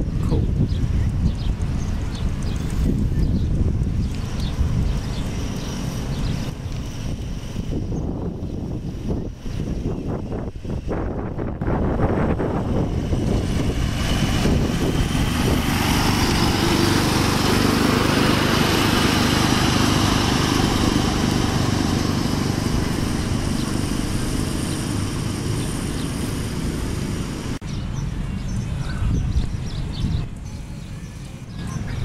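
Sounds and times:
miniature locomotive engine running: 0:13.6 - 0:27.6.

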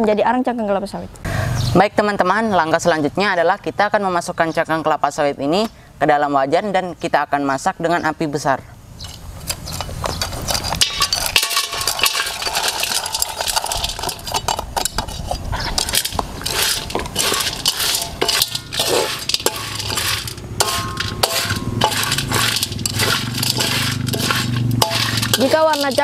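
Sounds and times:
shells rattling in steel wok: 0:09.0 - 0:26.0.

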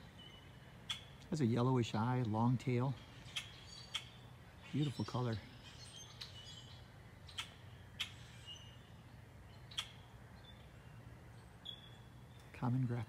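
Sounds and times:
faint distant birdsong: 0:00.0 - 0:13.0
grackle chack calls: 0:07.2 - 0:08.5.

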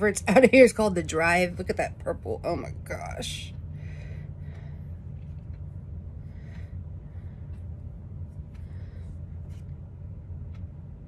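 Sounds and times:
steady low hum: 0:00.0 - 0:11.0
woman breathing softly: 0:03.7 - 0:05.4, 0:06.0 - 0:09.8.

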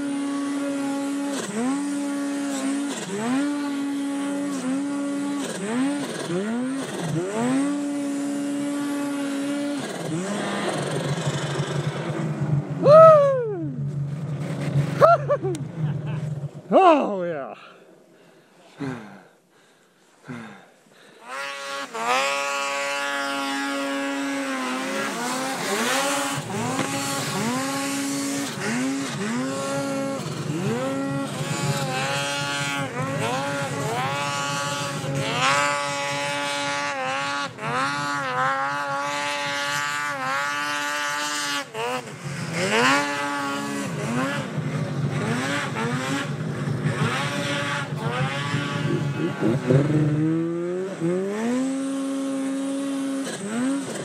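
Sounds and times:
snowmobile engine revving hard: 0:00.0 - 0:17.4, 0:20.2 - 0:54.0.

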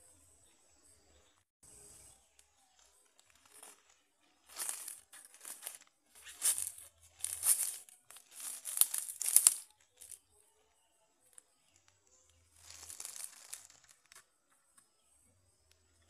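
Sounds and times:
footsteps crunching through dry leaves: 0:02.6 - 0:10.2, 0:12.5 - 0:14.2
brushing through undergrowth: 0:02.7 - 0:10.2, 0:12.6 - 0:14.2.

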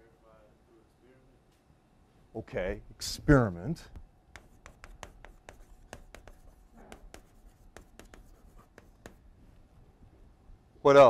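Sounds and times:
handwriting taps and scratches: 0:04.3 - 0:09.3.

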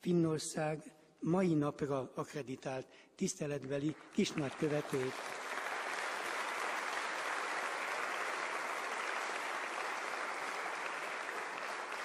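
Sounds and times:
applause: 0:03.4 - 0:12.0.

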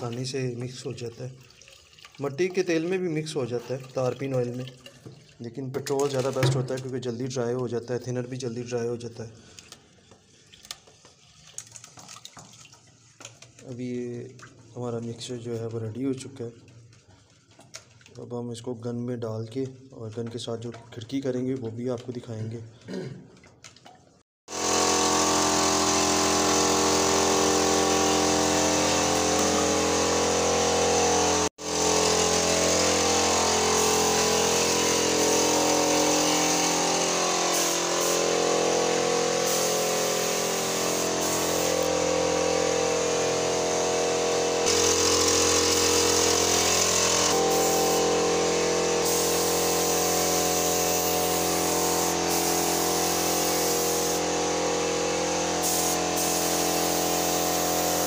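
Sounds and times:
air compressor motor running: 0:24.5 - 0:58.0
paint spray gun hissing: 0:24.5 - 0:58.0.

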